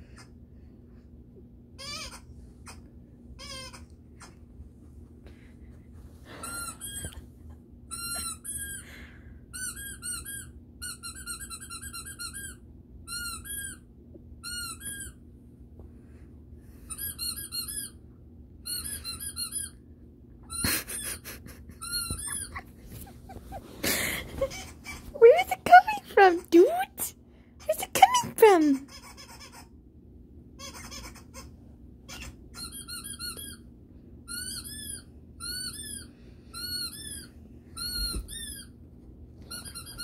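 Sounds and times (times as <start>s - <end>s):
squeaky dog toy squeaking: 1.8s - 2.8s, 3.4s - 4.3s, 7.9s - 8.8s, 9.6s - 15.2s, 16.9s - 18.0s, 18.6s - 19.8s, 21.8s - 22.6s, 24.4s - 29.7s, 30.6s - 31.5s, 32.1s - 33.6s, 34.3s - 38.7s, 39.5s - 40.0s.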